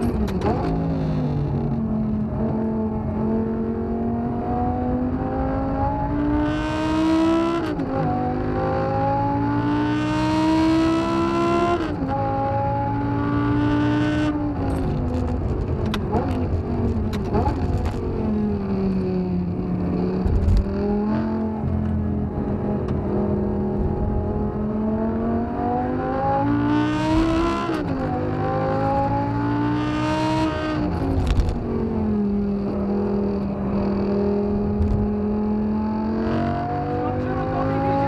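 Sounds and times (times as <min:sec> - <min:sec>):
car engine revving from cabin: 0:00.0 - 0:15.3, 0:16.0 - 0:38.0.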